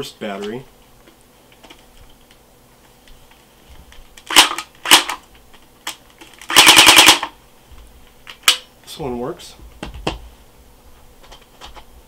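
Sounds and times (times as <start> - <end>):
airsoft gun firing: 4.3 - 5.2, 6.5 - 7.3
rapid burst of shots: 4.3 - 5.2, 6.5 - 7.3.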